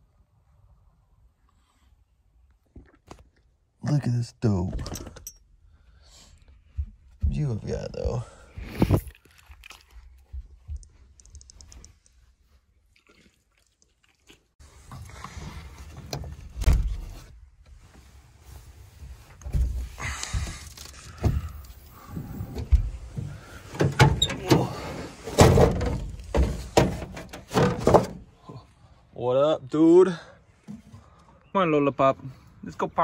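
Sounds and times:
tailgate being handled: 21.2 - 28.3.

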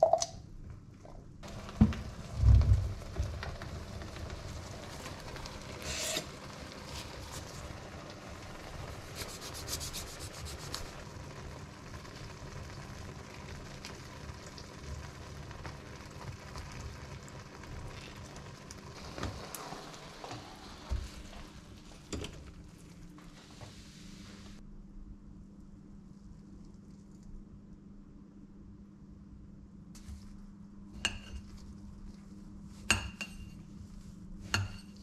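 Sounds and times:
food sizzling in a pan: 1.4 - 22.2
spatula scraping a pan: 5.8 - 7.5.

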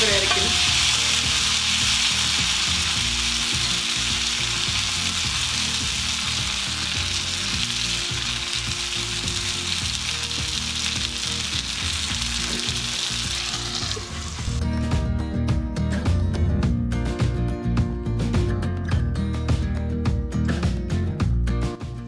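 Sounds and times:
metal spatula on pan: 0.0 - 8.4
fish sizzling in oil: 0.0 - 14.6.

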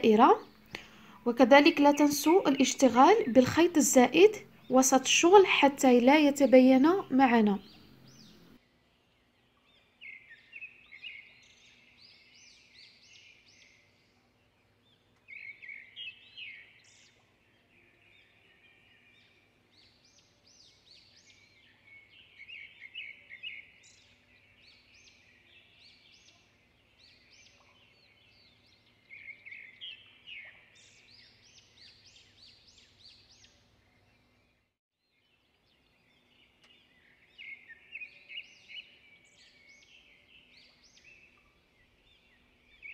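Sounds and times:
faint steady hum: 0.0 - 18.7
bird chirping: 0.0 - 42.9.

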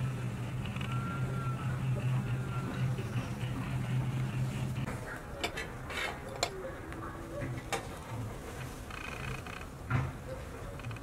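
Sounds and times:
steady low hum: 0.0 - 9.9.

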